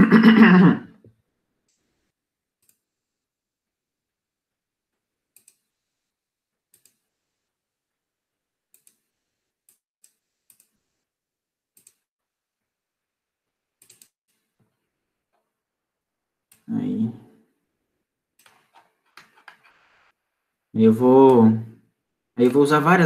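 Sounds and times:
faint mouse clicks: 2.6 - 2.8, 5.3 - 5.7, 6.7 - 7.0, 8.7 - 9.0, 9.7 - 10.8, 11.8 - 12.0, 13.8 - 14.4.

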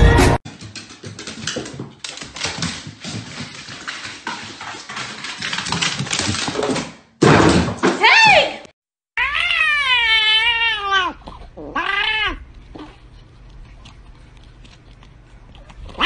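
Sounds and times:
dog claws tapping on wooden stairs: 0.5 - 8.0.

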